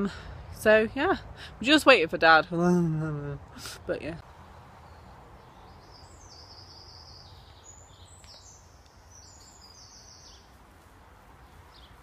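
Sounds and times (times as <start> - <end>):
faint bird song: 4.2 - 10.7, 11.3 - 12.0.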